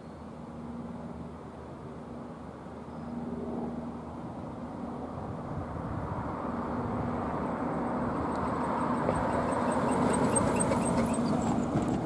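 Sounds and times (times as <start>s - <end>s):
steel wheels rumbling on rail: 6.1s - 12.0s.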